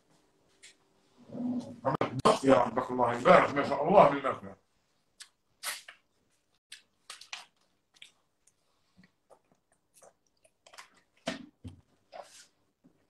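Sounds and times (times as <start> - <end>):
person chewing: 5.1 - 11.2.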